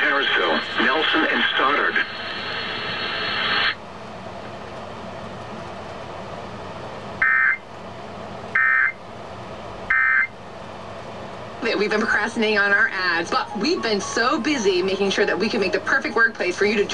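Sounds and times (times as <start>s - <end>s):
radio hiss: 0.0s - 3.8s.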